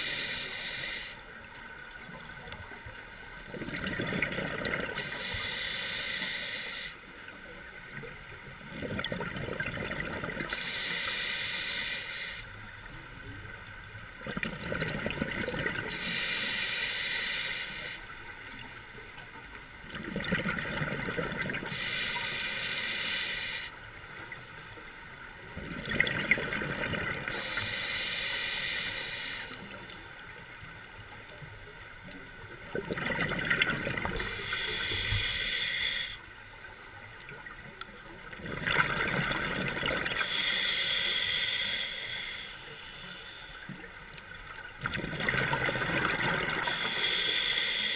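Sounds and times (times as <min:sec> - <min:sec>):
regulator inhalation hiss: 0:00.0 - 0:01.2, 0:05.0 - 0:07.1, 0:10.4 - 0:12.6, 0:15.9 - 0:18.1, 0:21.6 - 0:23.8, 0:27.3 - 0:29.8, 0:34.2 - 0:36.3, 0:40.0 - 0:43.8, 0:46.5 - 0:47.9
diver exhaling gurgling bubbles: 0:32.8 - 0:34.7, 0:38.4 - 0:40.2, 0:44.8 - 0:46.9.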